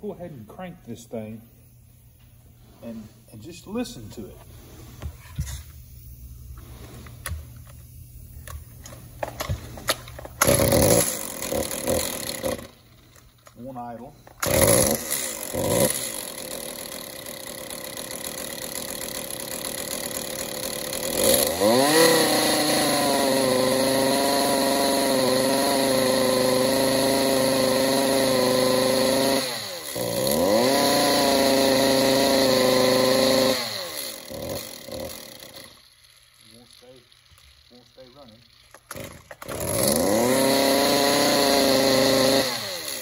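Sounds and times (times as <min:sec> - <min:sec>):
chainsaw engine idling and revving: 0:10.4 - 0:13.0, 0:14.4 - 0:43.0.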